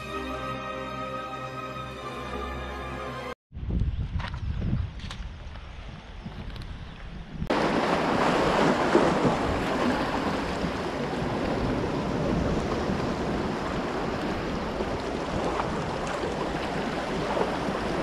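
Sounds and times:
wind buffeting microphone: 0:03.5 - 0:18.0
small waves splashing on concrete: 0:07.5 - 0:18.0.

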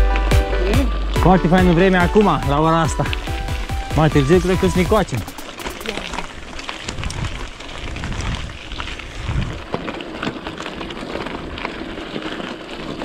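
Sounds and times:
wind buffeting a microphone: 0:03.2 - 0:13.0.

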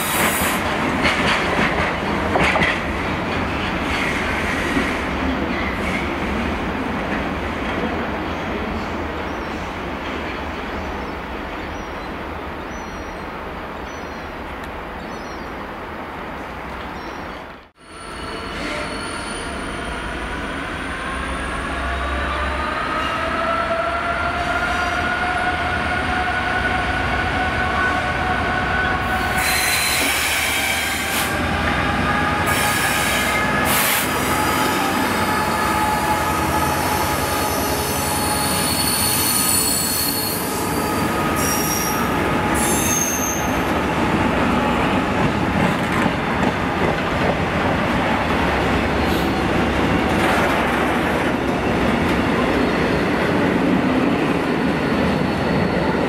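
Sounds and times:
train wheels squealing: 0:17.8 - 0:20.1, 0:29.2 - 0:31.2, 0:32.5 - 0:43.8, 0:54.4 - 0:56.0.

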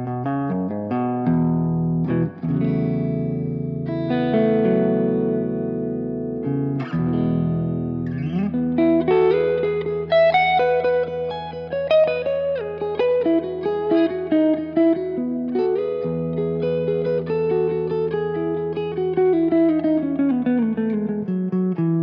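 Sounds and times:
electric guitar playing: 0:00.0 - 0:22.0.

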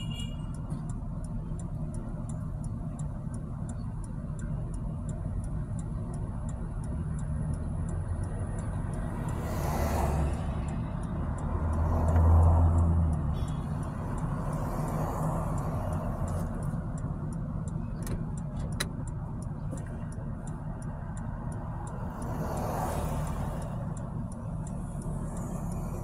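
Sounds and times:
faint rapid ticking: 0:00.0 - 0:26.0
vehicle engine and road rumble: 0:00.0 - 0:26.0
passing vehicle rush: 0:05.5 - 0:26.0.

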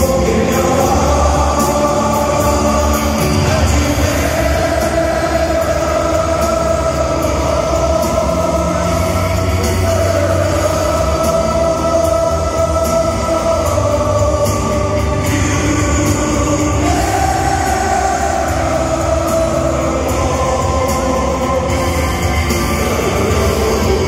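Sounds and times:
stadium crowd singing: 0:00.0 - 0:24.0.

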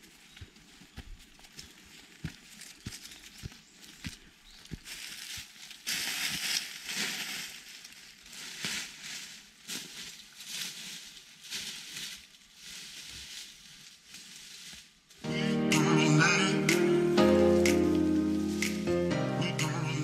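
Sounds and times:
dry crunching and crackling: 0:00.0 - 0:15.2.

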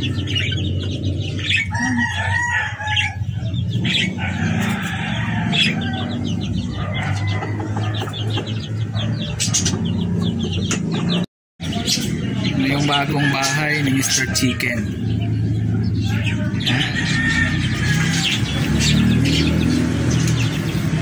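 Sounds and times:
rooster crowing and clucking: 0:01.4 - 0:09.8, 0:12.7 - 0:15.1, 0:16.1 - 0:21.0.

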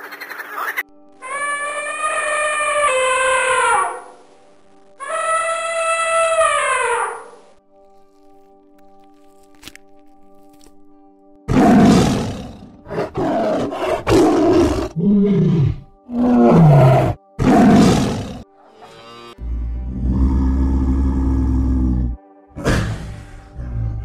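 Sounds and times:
tiger roaring and growling: 0:11.5 - 0:18.5, 0:19.4 - 0:24.0.

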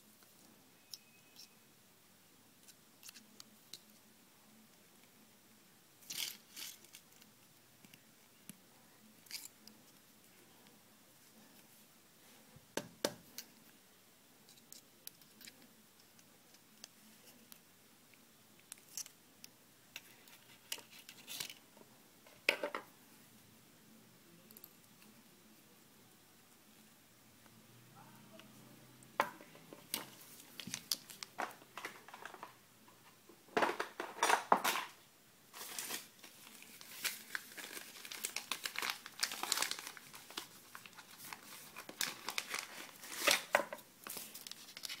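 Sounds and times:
pliers clicking and scraping wire: 0:02.6 - 0:04.0, 0:06.0 - 0:08.6, 0:09.2 - 0:09.8, 0:14.5 - 0:21.6.

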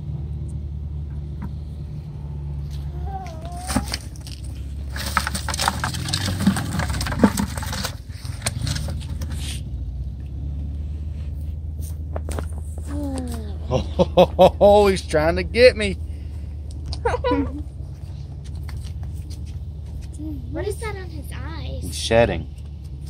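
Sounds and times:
low hum: 0:00.0 - 0:21.4
hand rummaging in plastic bucket: 0:03.4 - 0:09.4.

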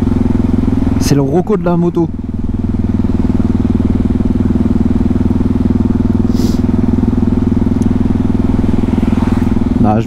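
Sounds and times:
motorcycle engine running: 0:00.0 - 0:10.0
short hiss: 0:06.3 - 0:06.7.

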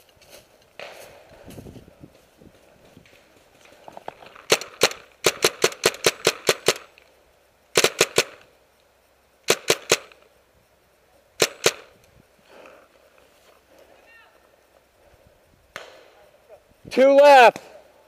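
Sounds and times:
paintball marker firing: 0:04.5 - 0:06.9, 0:07.8 - 0:08.4, 0:11.4 - 0:11.9, 0:15.7 - 0:16.1.

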